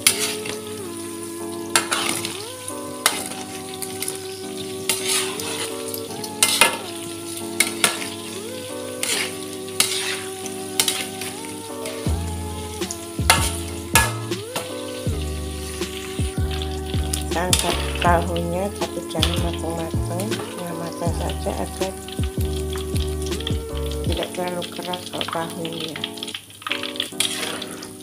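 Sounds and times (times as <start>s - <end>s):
metal spatula scraping wok: 0.0s - 0.6s, 1.7s - 2.4s, 3.0s - 12.1s, 12.8s - 16.2s, 27.0s - 28.0s
tofu sizzling in oil: 0.0s - 18.0s, 20.4s - 28.0s.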